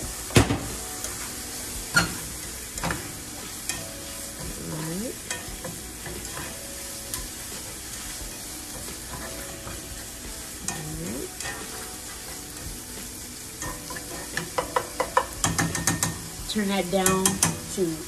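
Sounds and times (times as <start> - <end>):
onions and bacon sizzling in oil: 0.0 - 18.0
spatula clicking against pan: 13.6 - 16.3.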